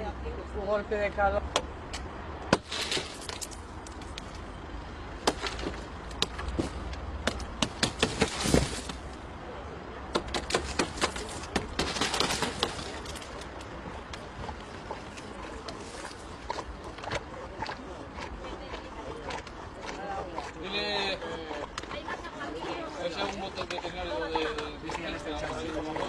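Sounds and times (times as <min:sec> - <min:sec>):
hammer shattering car window: 0:06.5 - 0:09.0, 0:10.1 - 0:13.0.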